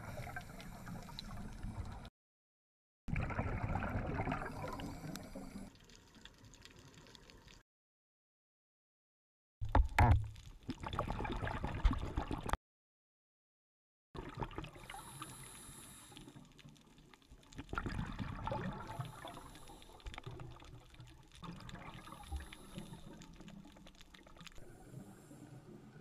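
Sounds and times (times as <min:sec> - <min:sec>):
exhaled bubbles underwater: 0:03.1 - 0:06.8, 0:10.7 - 0:12.6, 0:14.2 - 0:26.0
regulator inhale hiss: 0:14.8 - 0:16.4, 0:19.0 - 0:20.1, 0:22.1 - 0:23.2.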